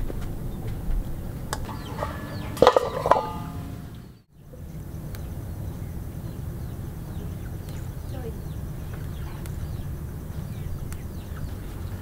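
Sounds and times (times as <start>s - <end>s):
low background noise: 0.0s - 12.0s
crabs clattering in metal pan: 1.7s - 4.0s.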